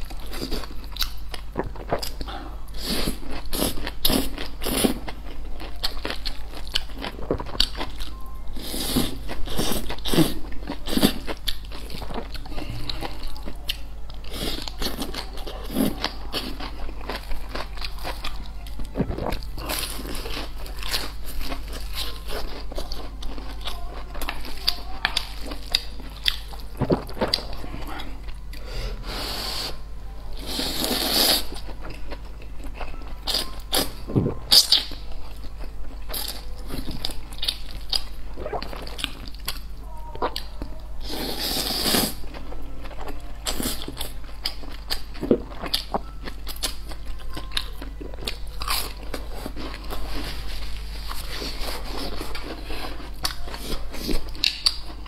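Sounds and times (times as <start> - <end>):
wet chewing: 0.0 - 28.7, 30.5 - 40.7, 41.3 - 55.0.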